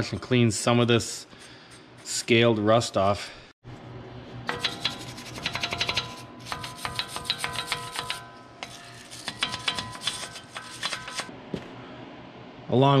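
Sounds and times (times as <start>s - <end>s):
wire brush scrubbing metal: 4.5s - 11.3s
metal ringing: 5.7s - 11.3s.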